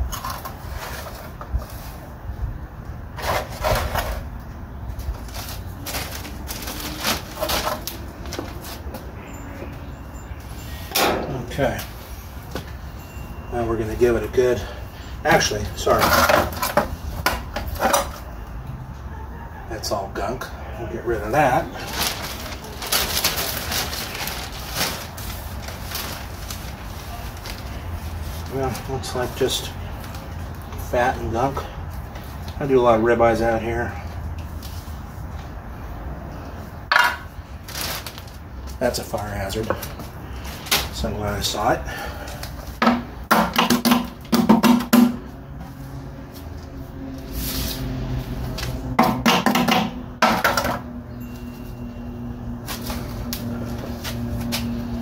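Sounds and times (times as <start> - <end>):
metal tray clattering and scraping: 3.2 - 4.2
plastic bag rustling and crinkling: 3.2 - 9.1, 21.2 - 32.5, 37.2 - 41.5.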